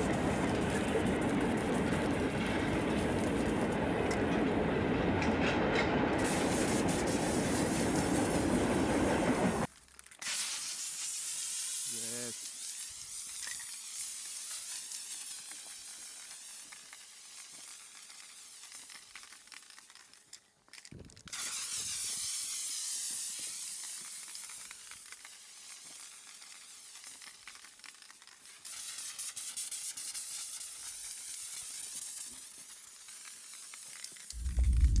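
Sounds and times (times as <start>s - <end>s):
spray paint can hissing: 0.0s - 3.7s, 6.2s - 8.4s, 10.2s - 35.0s
loud low thud: 34.4s - 35.0s.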